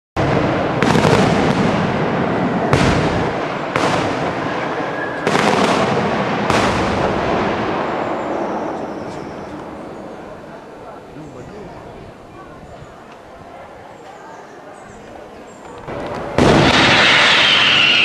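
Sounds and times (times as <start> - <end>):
fireworks bursting with echo: 0.2 - 10.4, 15.7 - 18.0.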